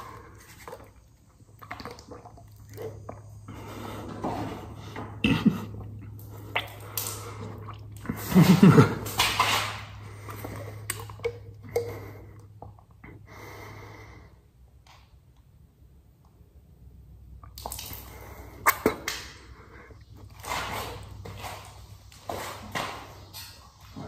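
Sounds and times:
heavy breathing: 0:03.3 - 0:08.4, 0:11.6 - 0:14.5
person coughing and sputtering: 0:05.1 - 0:06.2, 0:08.1 - 0:09.2
gulping from a bottle: 0:05.2 - 0:09.1.

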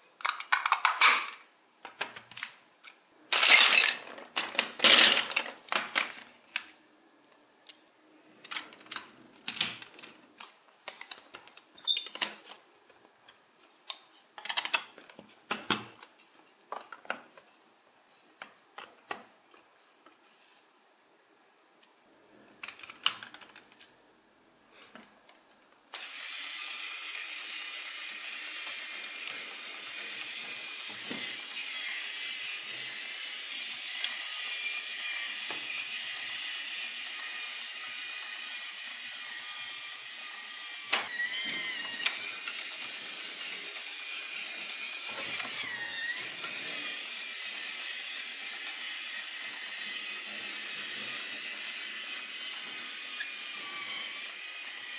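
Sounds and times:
plastic blocks clicking: 0:00.2 - 0:02.6, 0:03.3 - 0:06.7, 0:13.8 - 0:16.1, 0:22.5 - 0:23.9
small motor whirring: 0:25.9 - 0:54.9.

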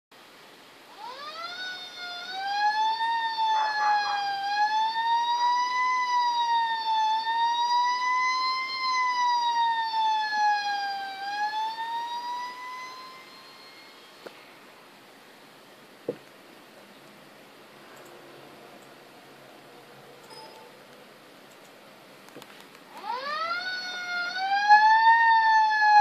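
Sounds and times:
fire truck siren wailing: 0:00.9 - 0:14.2, 0:22.9 - 0:26.0.

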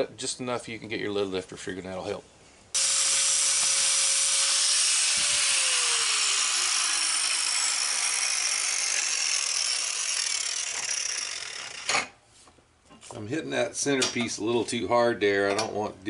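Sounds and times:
angle grinder cutting metal: 0:02.8 - 0:12.1.

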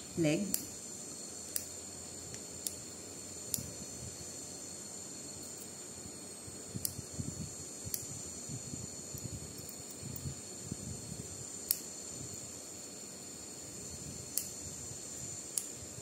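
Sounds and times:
scissors and forceps clicking: 0:03.5 - 0:03.7, 0:14.3 - 0:14.6.

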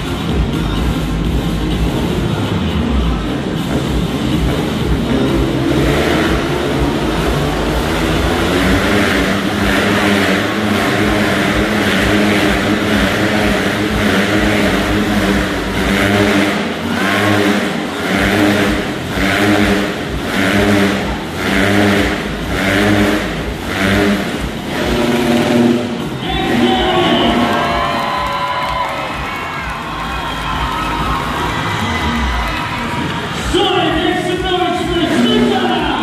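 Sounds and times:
motorcycle engines revving: 0:00.0 - 0:36.0.

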